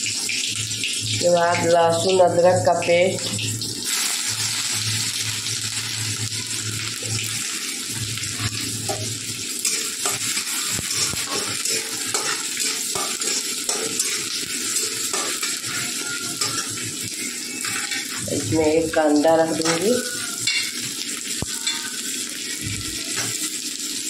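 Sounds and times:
paste sizzling in hot oil: 2.7s - 24.0s
metal spatula scraping pan: 8.4s - 16.9s.

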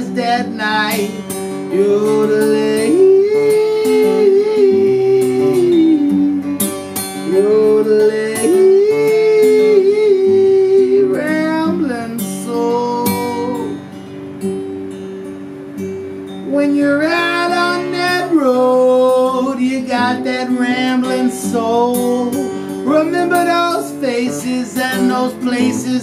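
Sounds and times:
strummed acoustic guitar: 0.0s - 26.0s
man yodeling: 1.7s - 6.4s, 7.3s - 13.7s.

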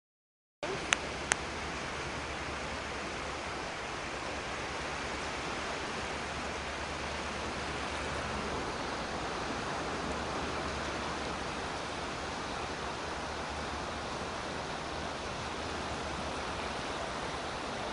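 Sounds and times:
distant surf rushing: 0.6s - 17.9s.

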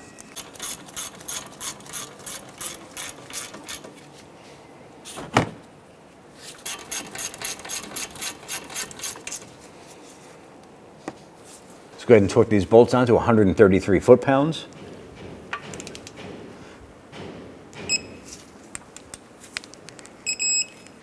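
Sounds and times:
ratchet wrench clicking: 0.4s - 3.9s, 6.6s - 9.5s.

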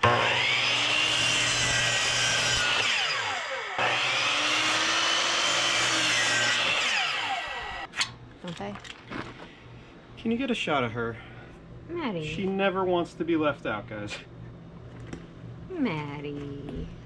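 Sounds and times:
power saw cutting wood: 0.0s - 7.9s.

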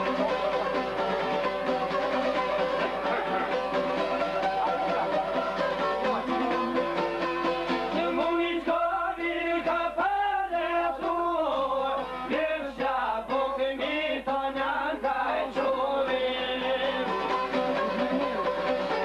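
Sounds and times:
plucked long-necked lute: 0.0s - 8.3s, 13.3s - 19.0s
men singing folk song: 7.9s - 17.6s.

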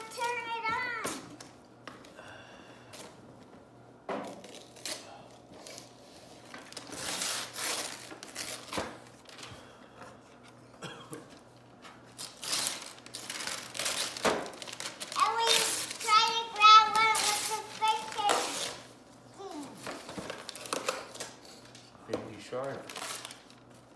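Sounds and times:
wrapping paper rustling and tearing: 4.4s - 9.5s, 12.0s - 18.9s, 19.5s - 21.9s, 22.5s - 23.9s.

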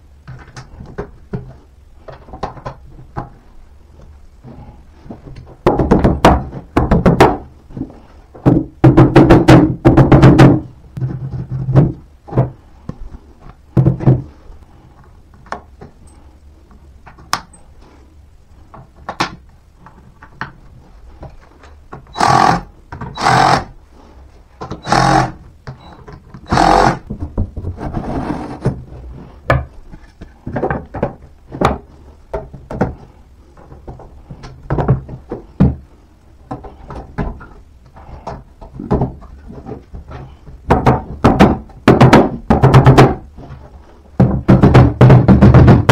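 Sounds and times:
mallet knocking wooden panels: 5.6s - 7.5s, 8.4s - 10.7s, 40.7s - 43.3s, 44.2s - 45.9s
panels scraping: 26.4s - 41.1s.

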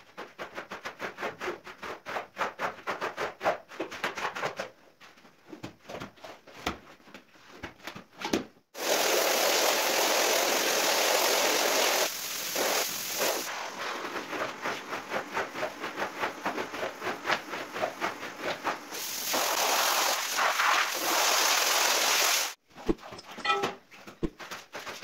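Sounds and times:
squeegee scraping wet rug: 8.8s - 22.6s
water spraying onto rug: 8.8s - 22.6s
brief chime: 23.4s - 23.8s.

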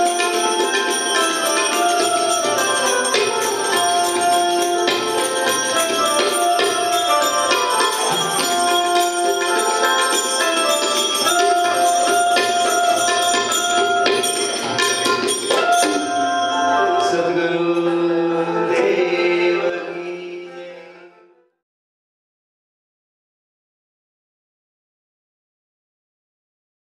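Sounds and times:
hand cymbals: 0.0s - 18.2s
tabla drumming: 0.0s - 20.0s
banjo melody: 0.0s - 21.2s.

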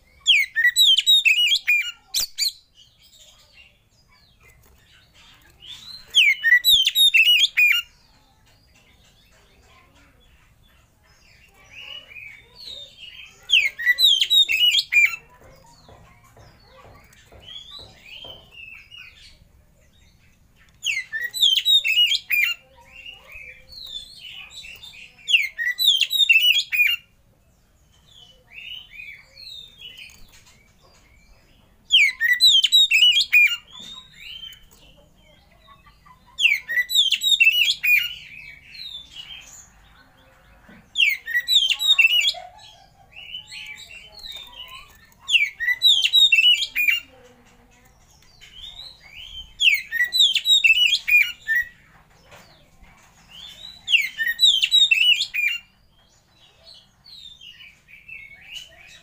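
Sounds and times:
bird singing whistles and trills: 0.2s - 2.6s.

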